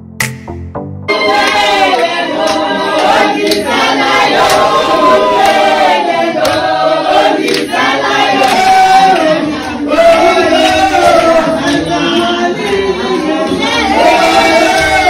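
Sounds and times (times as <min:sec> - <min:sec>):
sharp beat: 0:00.1 - 0:04.9
group singing in unison: 0:01.1 - 0:15.0.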